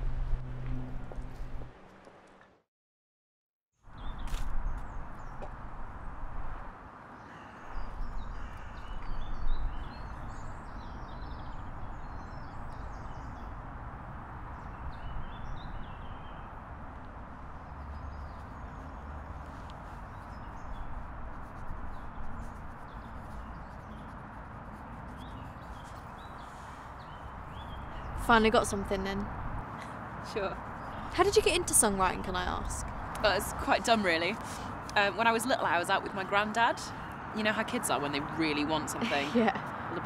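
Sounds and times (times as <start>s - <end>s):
small birds chirping: 7.2s - 13.6s, 17.6s - 39.7s
wind buffeting microphone: 25.0s - 34.8s.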